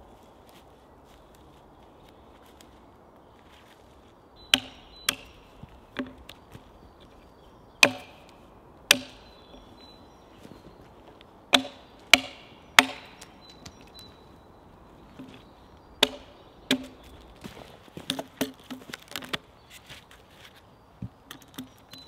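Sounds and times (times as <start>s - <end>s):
axe chopping into log: 4.5s - 5.4s, 7.8s - 8.3s, 8.9s - 9.3s, 11.5s - 13.3s, 16.0s - 17.0s.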